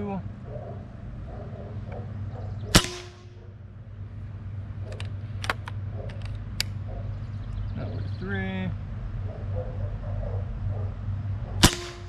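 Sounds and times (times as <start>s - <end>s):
air rifle shot: 2.7s - 3.3s, 11.6s - 12.0s
rifle action clicking: 4.9s - 6.8s.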